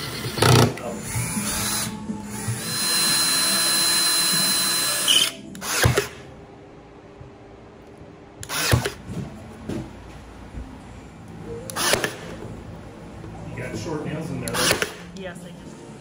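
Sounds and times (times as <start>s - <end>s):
cordless drill whining: 0.0s - 6.2s, 8.4s - 9.0s
brad nailer firing: 2.8s - 6.2s, 8.4s - 9.1s, 11.7s - 12.4s, 14.5s - 15.1s.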